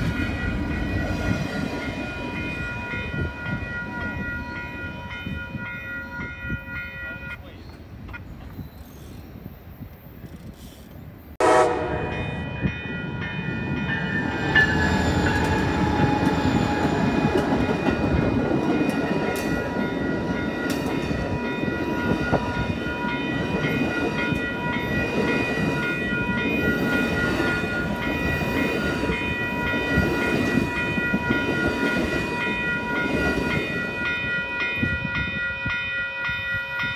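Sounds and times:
crossing bells ringing: 0.0s - 7.8s, 11.4s - 36.9s
train horn: 11.4s - 12.5s
train wheels clattering on rails: 13.8s - 35.8s.

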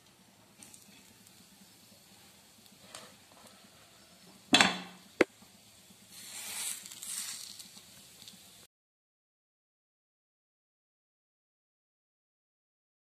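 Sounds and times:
fish sizzling in hot oil: 0.3s - 8.7s.

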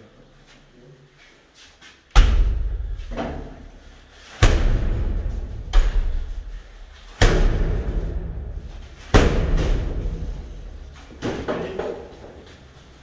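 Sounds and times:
heavy booming thuds with deep ring: 4.4s - 6.6s, 7.2s - 10.8s.

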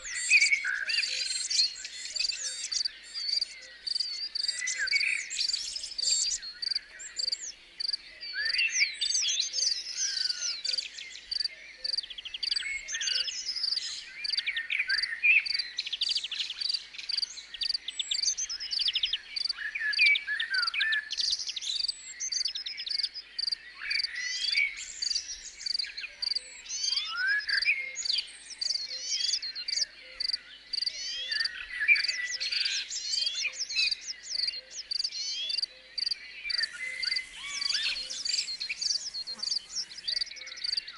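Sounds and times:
birds singing: 0.0s - 40.9s
insects chirping: 5.5s - 8.0s, 22.8s - 24.0s, 30.2s - 31.5s, 34.9s - 40.9s.

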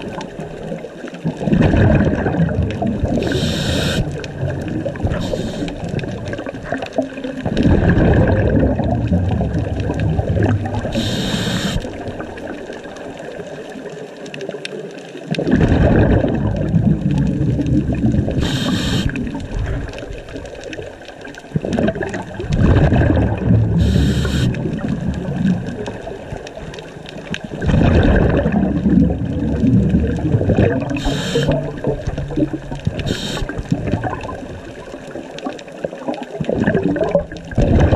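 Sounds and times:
bubbling exhaust underwater: 0.0s - 37.9s
hissing regulator inhales: 3.2s - 4.1s, 5.1s - 5.8s, 10.9s - 11.9s, 18.4s - 19.2s, 23.8s - 24.6s, 31.0s - 31.6s, 33.0s - 33.6s.

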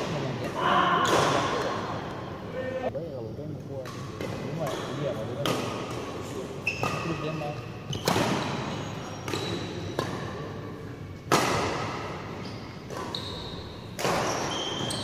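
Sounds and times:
court shoes squeaking on floor: 6.3s - 10.5s, 12.2s - 15.0s
rackets striking shuttlecock: 6.8s - 10.5s, 11.2s - 15.0s.

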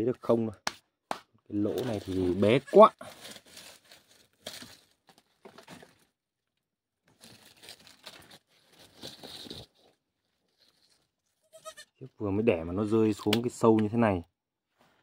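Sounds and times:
rustling and scraping against rock: 1.6s - 6.1s, 7.1s - 11.4s.

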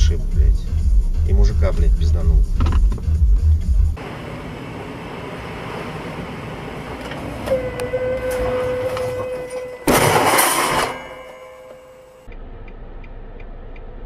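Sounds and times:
car engine and road noise: 0.0s - 14.0s
car horn: 6.9s - 12.3s
crash of metal and glass: 9.4s - 12.1s.

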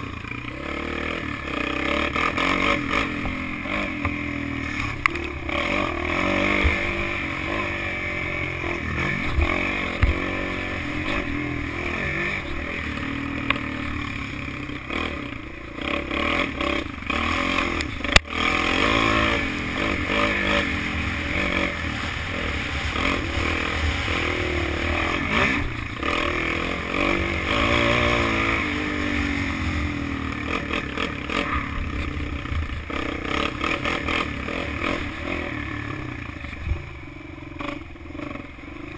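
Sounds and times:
quad engine revving: 0.0s - 38.9s.

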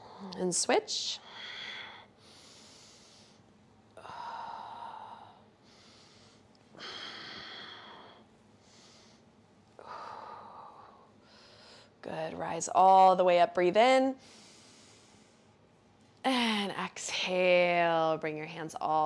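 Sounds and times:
woman breathing deeply: 1.2s - 12.0s, 14.2s - 15.6s.

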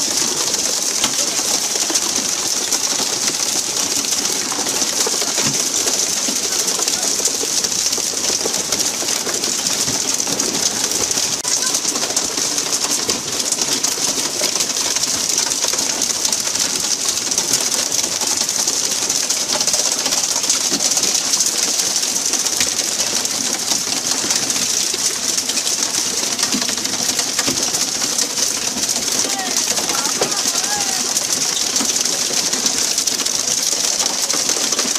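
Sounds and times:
sea water rushing along hull: 29.2s - 31.2s.

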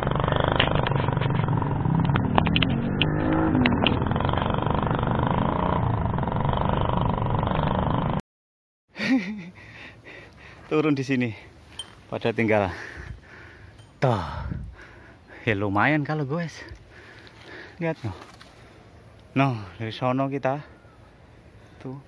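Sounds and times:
motorcycle engine: 0.0s - 8.2s
wind: 0.0s - 8.2s, 8.9s - 22.0s.

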